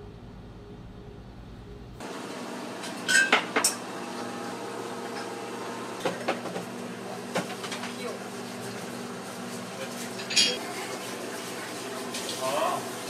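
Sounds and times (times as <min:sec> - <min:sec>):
steady machine hum: 0:00.0 - 0:09.8.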